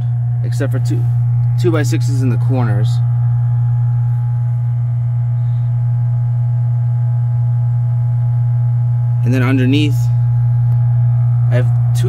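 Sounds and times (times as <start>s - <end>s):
filter pump humming: 0.0s - 12.0s.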